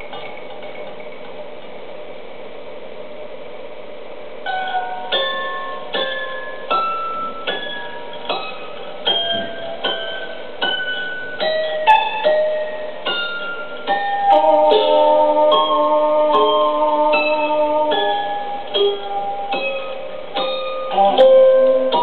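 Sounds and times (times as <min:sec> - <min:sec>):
steady hum: 0:00.0 - 0:22.0
slow plucked melody: 0:04.5 - 0:22.0.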